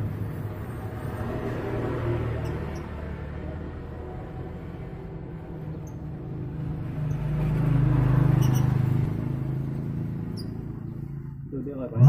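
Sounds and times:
vehicle passing by: 0:00.0 - 0:12.0.

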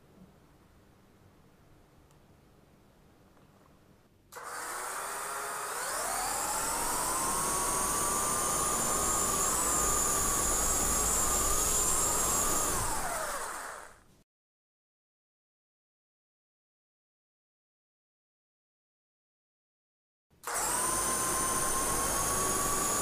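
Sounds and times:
electric motors whining: 0:04.4 - 0:14.0, 0:20.4 - 0:23.0.

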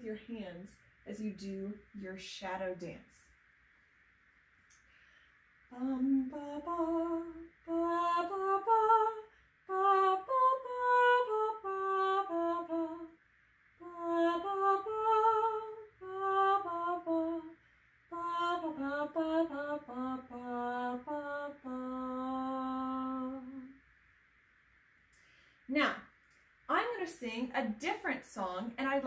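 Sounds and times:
woman singing wordless tune: 0:05.7 - 0:13.2, 0:13.8 - 0:23.8.

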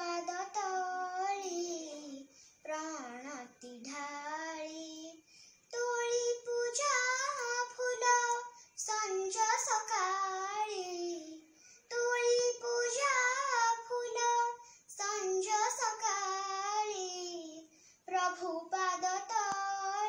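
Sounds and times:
girl singing unaccompanied: 0:00.0 - 0:20.0.

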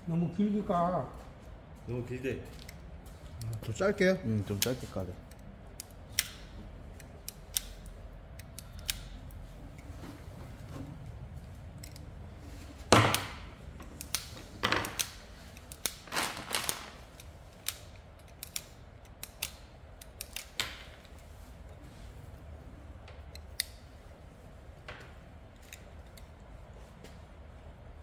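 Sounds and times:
wire stripper clicking and snapping: 0:04.5 - 0:09.9, 0:13.0 - 0:21.1.

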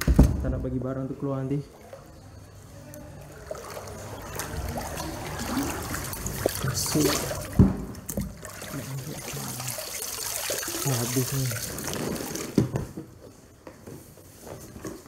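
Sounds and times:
floodwater sloshing and splashing: 0:01.7 - 0:12.7.

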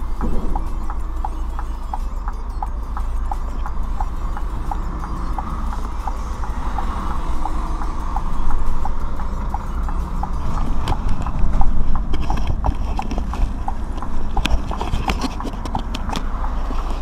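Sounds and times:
steady light ticking: 0:00.0 - 0:16.7
diesel engine rumble: 0:00.0 - 0:17.0.

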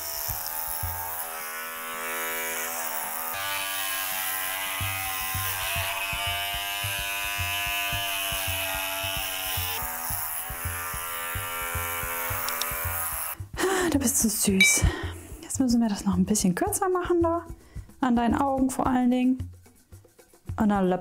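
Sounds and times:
electric clippers humming: 0:00.0 - 0:13.4.

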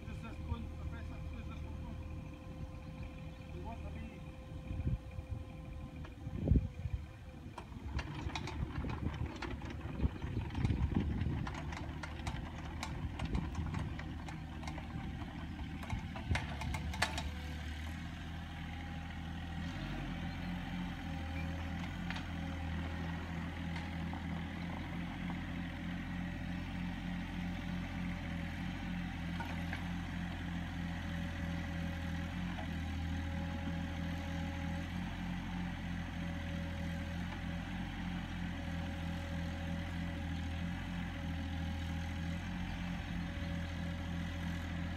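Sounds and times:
excavator diesel engine running: 0:00.0 - 0:44.9
sharp clanks and knocks: 0:07.6 - 0:17.4.

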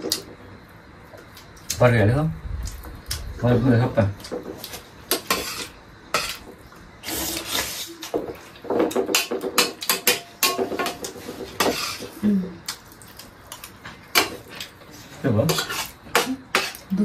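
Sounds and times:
metal spoon clinking on plates: 0:09.0 - 0:12.1.

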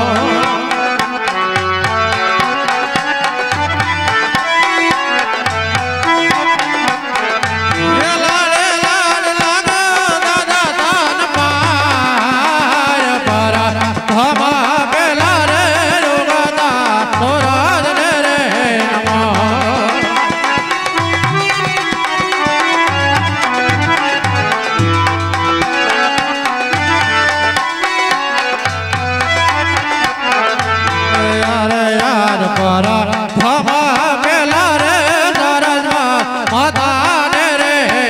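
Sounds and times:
man singing ornamented line: 0:00.0 - 0:01.3, 0:07.7 - 0:25.4, 0:29.6 - 0:38.0
steady drum rhythm: 0:00.0 - 0:37.9
devotional music instruments: 0:00.0 - 0:38.0.

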